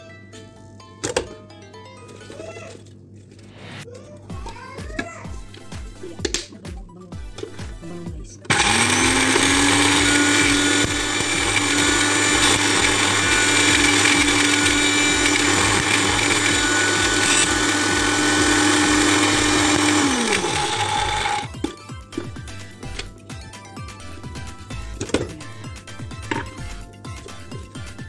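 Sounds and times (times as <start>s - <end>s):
blender grinding spices: 8.5s - 21.8s.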